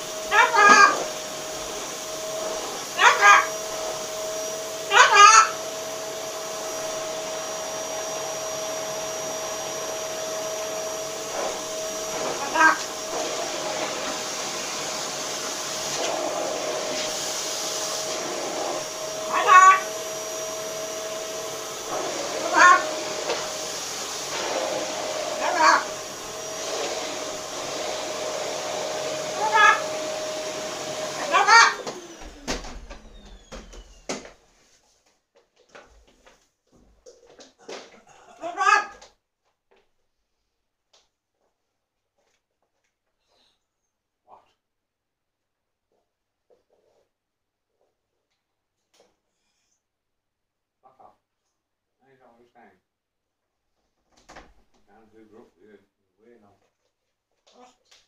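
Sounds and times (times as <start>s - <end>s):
macaw calling: 3.0s - 3.5s, 4.9s - 5.6s, 19.3s - 19.9s, 22.4s - 22.9s.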